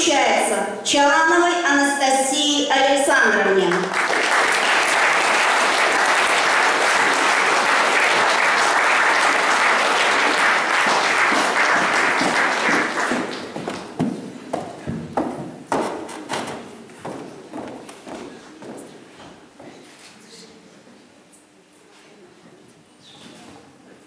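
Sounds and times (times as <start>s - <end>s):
audience applauding: 3.7s - 14.0s.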